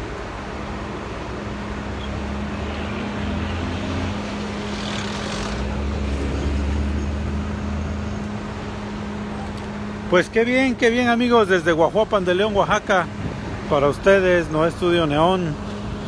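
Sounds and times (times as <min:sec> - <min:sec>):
cars passing: 0:00.0 - 0:16.0
steady engine hum: 0:00.0 - 0:16.0.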